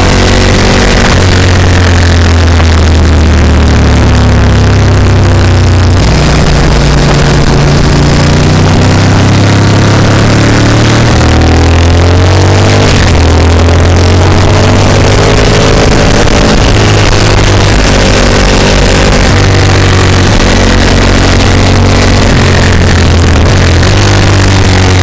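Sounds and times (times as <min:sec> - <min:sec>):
motorcycle engine accelerating: 0:00.0 - 0:25.0
wind noise: 0:00.0 - 0:25.0.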